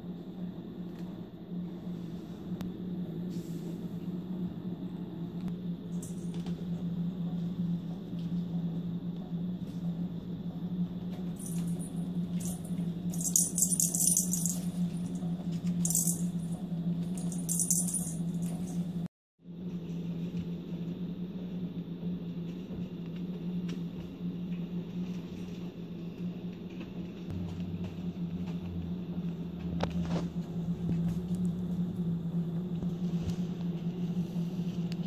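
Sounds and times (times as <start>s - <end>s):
steady low hum: 0.0s - 35.0s
cloth toy rattling: 11.4s - 15.2s, 15.8s - 18.9s.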